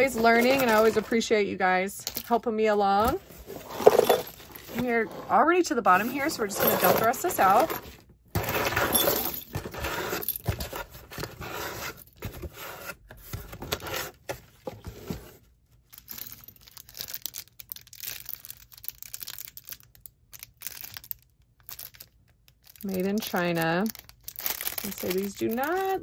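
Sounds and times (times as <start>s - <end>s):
plastic bags crinkling: 0.0s - 1.2s, 16.0s - 26.0s
jewelry clinking: 3.0s - 10.7s
jewelry dumped onto a pile: 3.1s - 4.8s.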